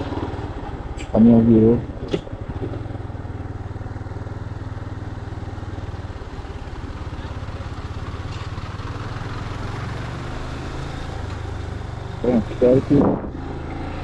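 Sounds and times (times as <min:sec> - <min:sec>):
motorcycle engine putter: 0:01.8 - 0:03.0.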